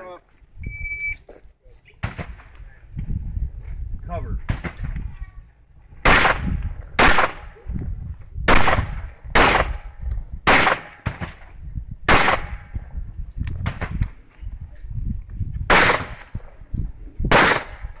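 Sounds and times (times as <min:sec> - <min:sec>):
handgun shots: 0:10.5 - 0:11.3, 0:15.7 - 0:16.3, 0:17.3 - 0:17.9.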